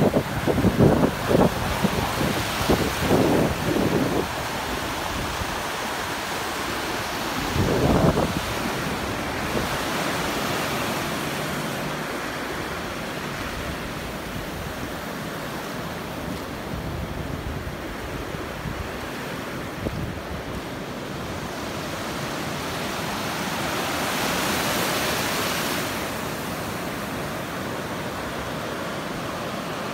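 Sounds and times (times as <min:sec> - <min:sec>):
wind rumble on microphone: 0:00.0 - 0:15.4, 0:16.1 - 0:22.4
surf breaking on beach: 0:00.0 - 0:29.9.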